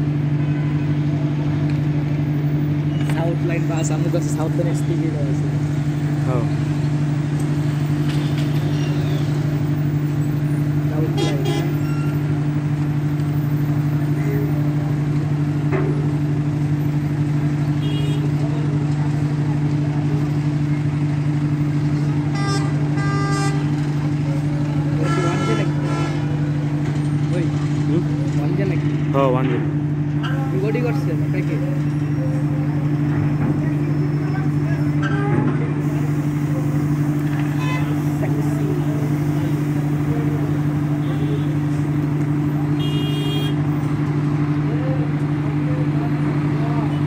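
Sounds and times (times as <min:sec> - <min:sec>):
diesel engine droning: 0:00.0 - 0:47.0
vehicle horn toots: 0:11.1 - 0:12.1, 0:17.8 - 0:18.4, 0:22.3 - 0:23.7, 0:25.0 - 0:26.4, 0:41.0 - 0:41.7, 0:42.8 - 0:43.6.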